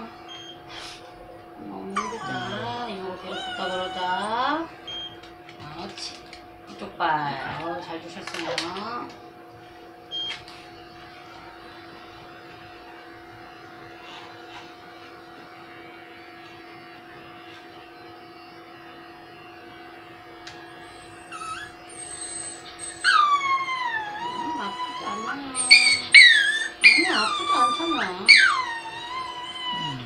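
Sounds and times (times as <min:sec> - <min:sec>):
dog whining and crying: 0:01.9 - 0:05.0, 0:20.7 - 0:30.0
electric clipper humming: 0:14.4 - 0:23.4, 0:24.0 - 0:30.0.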